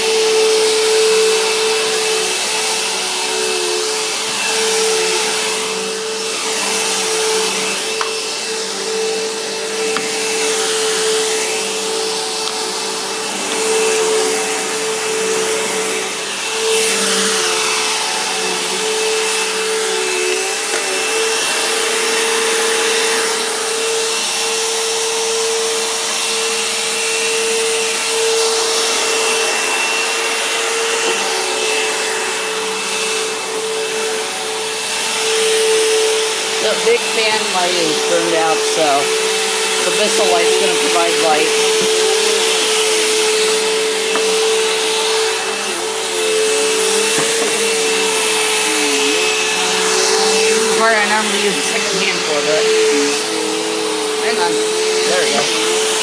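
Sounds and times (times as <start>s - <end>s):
vacuum cleaner running on carpet: 0.0s - 56.0s.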